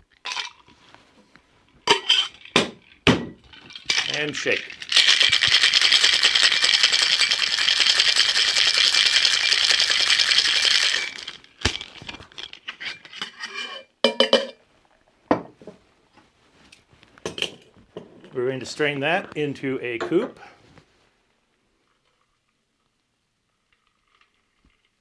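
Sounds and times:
ice rattling in cocktail shaker: 0.1s - 0.8s, 1.9s - 12.6s
metal shaker knocks and clinks: 1.9s - 11.9s.

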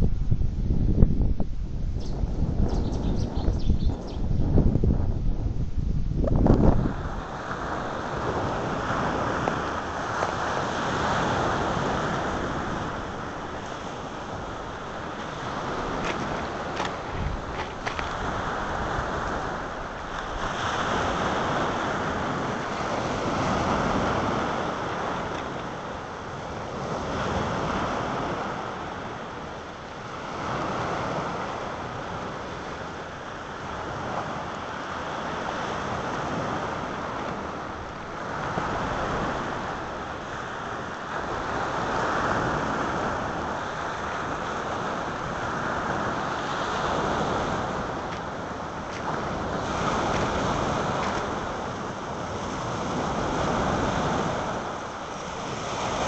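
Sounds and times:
wind on microphone: 0.0s - 56.0s
waves breaking on pebbles: 6.9s - 29.0s, 33.4s - 56.0s.

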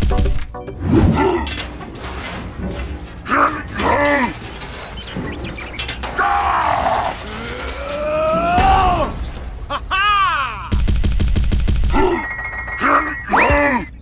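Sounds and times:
cartoon straining groaning voice: 6.8s - 10.8s.

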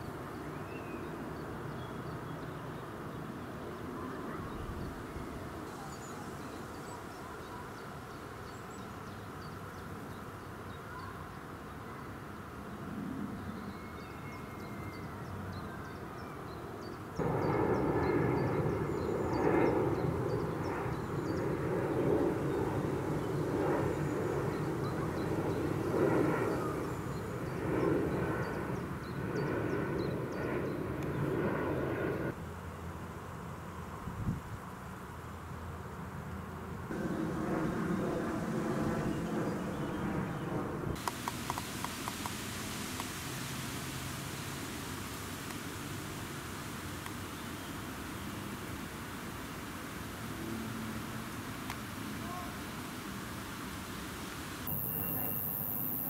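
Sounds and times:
steady engine drone: 36.9s - 46.1s
faint high chirps: 54.7s - 56.0s.

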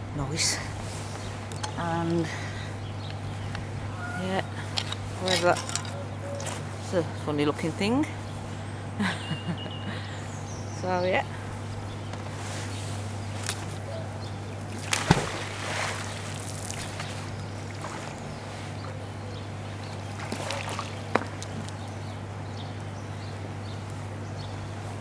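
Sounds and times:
water sloshing and dripping: 14.7s - 18.5s, 20.0s - 21.9s
magnet splashing into water: 14.8s - 17.0s.

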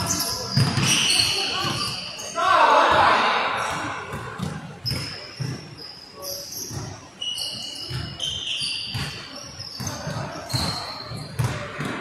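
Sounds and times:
sneakers squeaking on court: 0.0s - 2.4s, 3.0s - 12.0s
basketball dribbling on gym floor: 9.8s - 12.0s.

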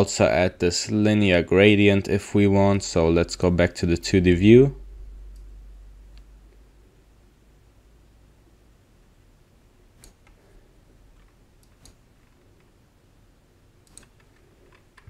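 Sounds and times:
computer mouse clicks: 10.0s - 10.4s, 11.2s - 12.7s, 13.8s - 15.0s.

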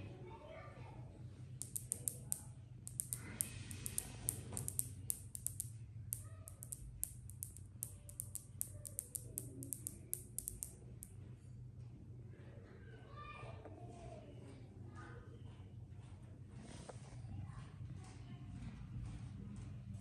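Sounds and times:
rapid sharp clicks: 1.6s - 11.1s.

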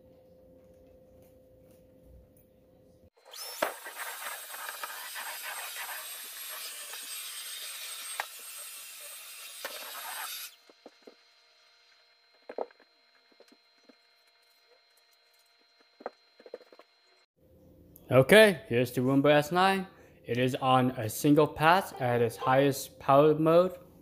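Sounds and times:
faint low hum: 0.0s - 3.1s
stick vacuum running: 3.2s - 7.0s.

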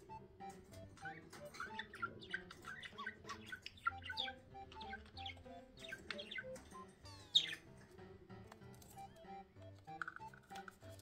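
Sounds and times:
soft background music: 0.0s - 11.0s
budgerigar chirping: 0.8s - 7.7s.

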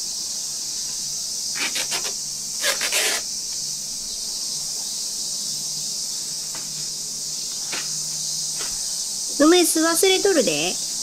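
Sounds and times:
cicadas shrilling: 0.0s - 11.0s
zipper rasping: 1.6s - 3.2s.

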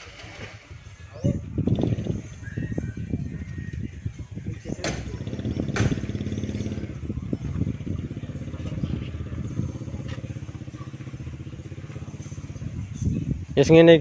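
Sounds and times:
sharp knocks of speaker cabinets: 4.8s - 6.1s.

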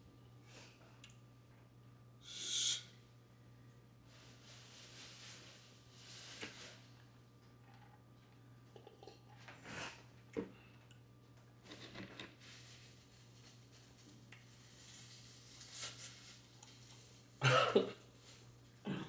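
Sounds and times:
low steady hum: 0.0s - 19.0s
quiet eating sounds: 6.6s - 12.4s
man coughing: 17.4s - 18.0s.

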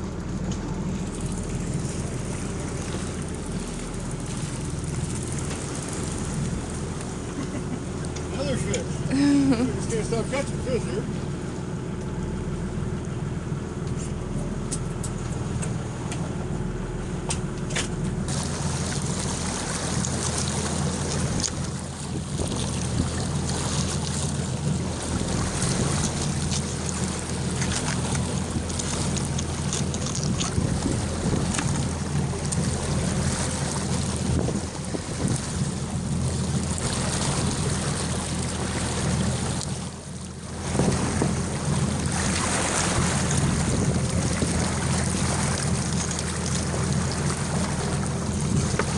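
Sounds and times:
boat motor running: 0.0s - 48.9s
wind: 0.0s - 48.9s
rushing water: 18.3s - 48.9s.

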